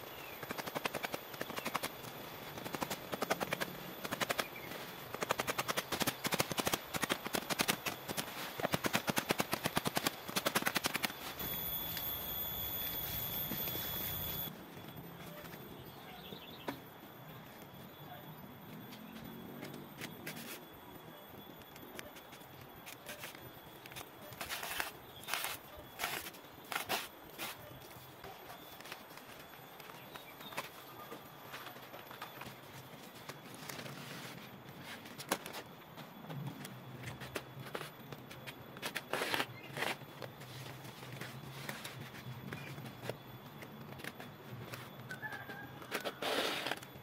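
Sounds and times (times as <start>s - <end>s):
leaves and string rustling: 22.5s - 47.0s
leaves rustling and crackling: 24.4s - 27.6s.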